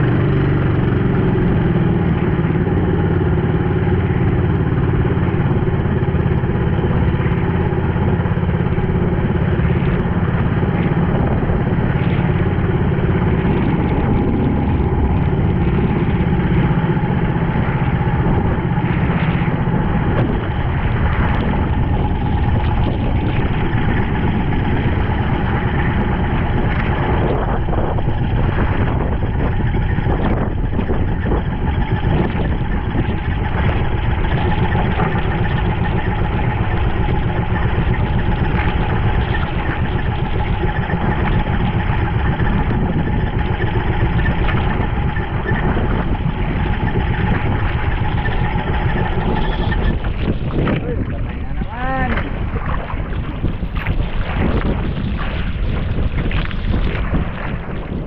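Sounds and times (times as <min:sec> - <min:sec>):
boat engine humming: 0:00.0 - 0:58.0
water splashing off hull: 0:00.0 - 0:58.0.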